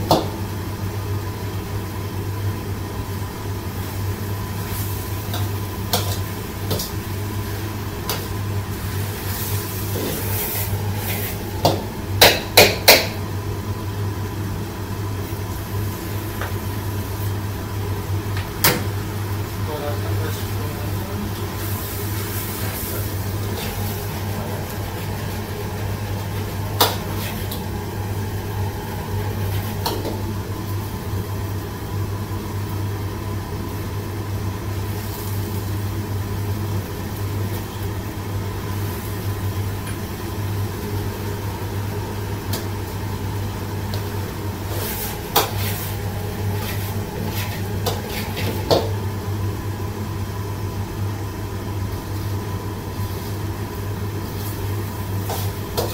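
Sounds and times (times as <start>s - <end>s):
vegetables sizzling: 3.7s - 13.6s, 21.2s - 31.5s, 38.5s - 49.5s, 51.9s - 55.9s
ladle scraping a wok: 4.6s - 11.5s, 21.5s - 27.7s, 44.6s - 48.8s, 55.2s - 55.9s.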